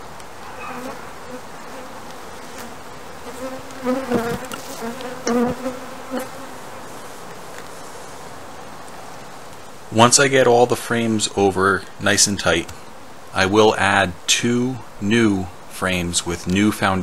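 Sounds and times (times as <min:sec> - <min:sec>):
honeybees buzzing: 0:00.0 - 0:09.5
bees flying past: 0:00.4 - 0:08.3.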